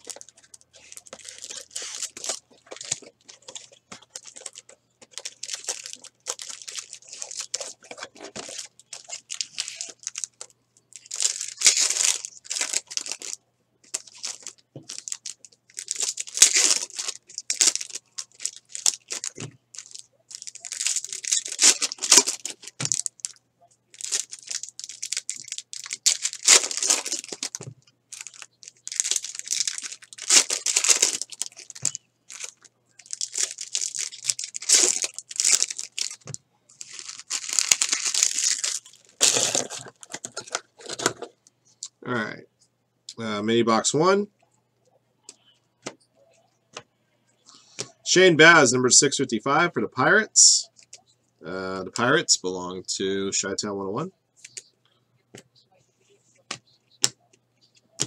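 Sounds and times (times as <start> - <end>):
foil wrappers ripping: 0.0 - 10.4, 11.0 - 23.4, 24.0 - 36.2, 36.8 - 41.2
wrappers crinkling and rustling: 0.0 - 41.4.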